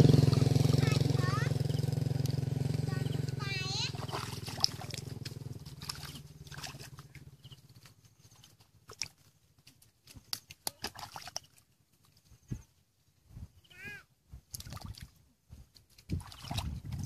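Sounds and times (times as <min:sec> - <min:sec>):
water splashing: 0:00.0 - 0:12.2, 0:14.5 - 0:17.0
hands squelching in wet mud: 0:03.1 - 0:12.4, 0:14.4 - 0:17.0.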